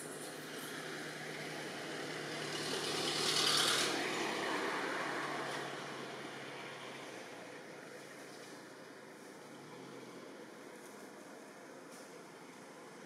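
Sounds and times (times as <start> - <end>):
vehicle passing by: 0.0 - 7.6.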